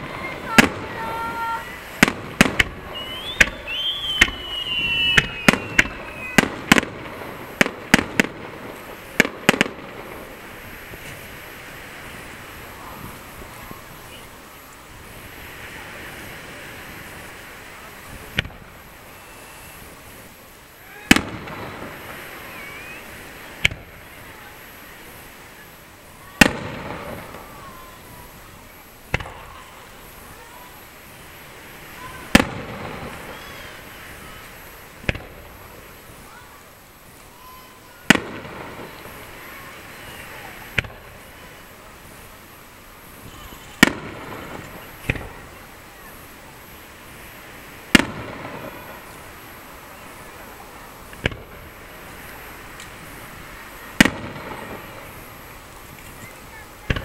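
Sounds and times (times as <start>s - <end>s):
firework bangs: 0.0s - 14.2s, 14.9s - 57.0s.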